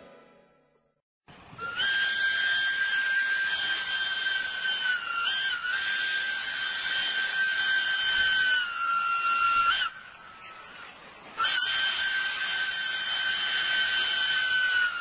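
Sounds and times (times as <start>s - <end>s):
steady hiss: 1.3s - 15.0s
locomotive air horn: 1.6s - 9.9s, 11.4s - 15.0s.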